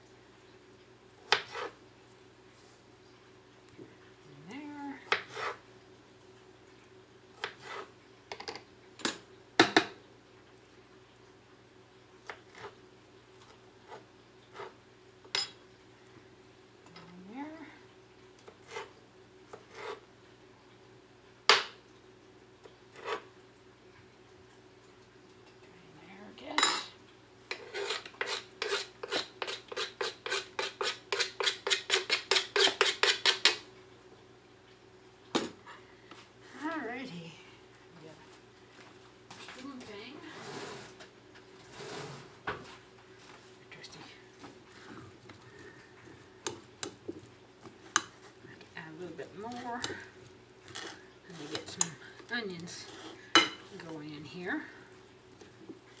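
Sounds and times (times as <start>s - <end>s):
metal utensil scraping: 27.5s - 33.1s.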